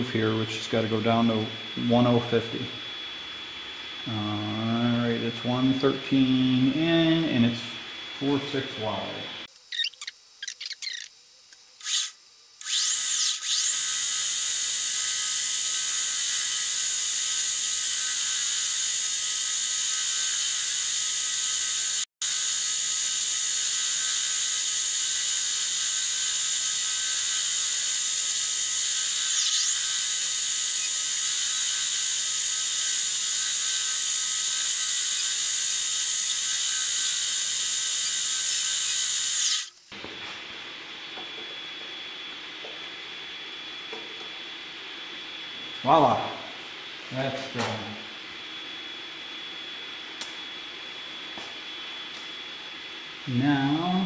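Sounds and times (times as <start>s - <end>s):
tool cutting metal: 9.6s - 40.0s
metal lathe whining: 19.4s - 39.8s.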